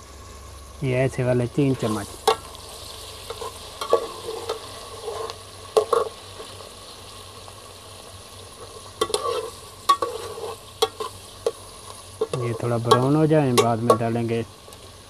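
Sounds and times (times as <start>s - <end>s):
onions sizzling in hot oil: 0.0s - 15.0s
metal spoon scraping pot: 3.3s - 6.1s, 8.6s - 11.6s.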